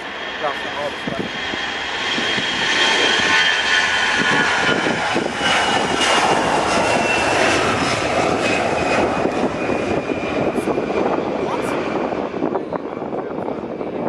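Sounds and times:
jet engines roaring at takeoff: 0:00.0 - 0:14.0.

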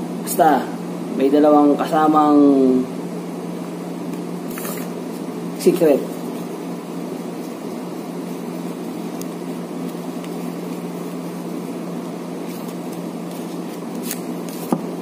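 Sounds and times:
room noise hum and hiss: 0:00.0 - 0:15.0
playing cards clicking: 0:12.5 - 0:14.8.

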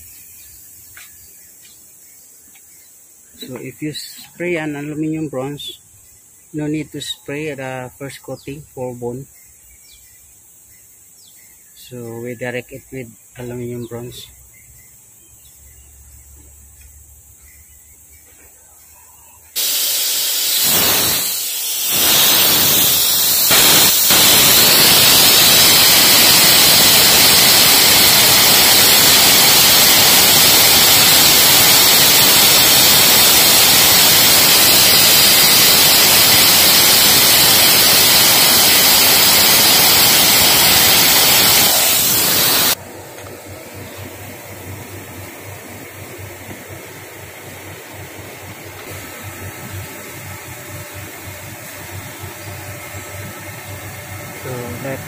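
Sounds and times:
lathe running: 0:19.6 - 0:42.8
metal spray gun hissing: 0:19.6 - 0:42.8, 0:44.6 - 0:55.0.

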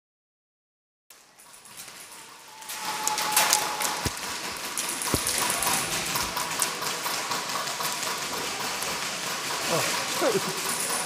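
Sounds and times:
sharper knocks: 0:04.0 - 0:06.3.

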